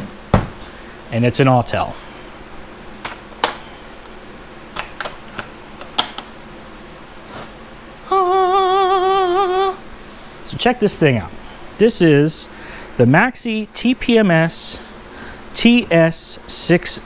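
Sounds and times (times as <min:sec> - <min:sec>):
man singing a held note: 0:08.0 - 0:09.8.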